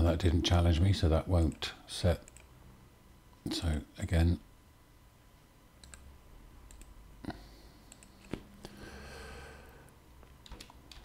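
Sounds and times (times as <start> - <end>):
computer mouse clicks: 2.2 - 2.5, 5.8 - 6.1, 6.7 - 6.9, 7.9 - 8.4, 10.2 - 11.0
soft breath near microphone: 7.2 - 10.0.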